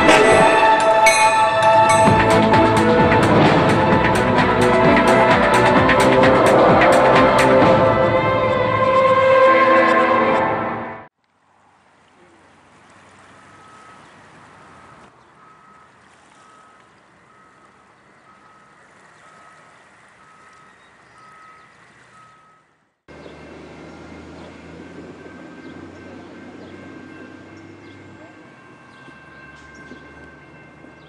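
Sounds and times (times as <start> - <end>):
reversing alarm beeping: 0.0 - 2.6, 14.8 - 18.8, 20.2 - 31.0.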